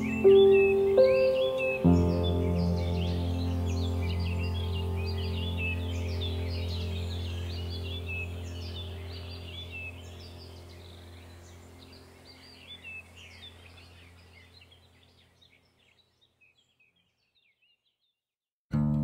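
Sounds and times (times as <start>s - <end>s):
acoustic guitar music: 0.0s - 10.5s, 18.7s - 19.0s
birds chirping: 0.0s - 18.2s
steady low hum: 1.9s - 15.0s.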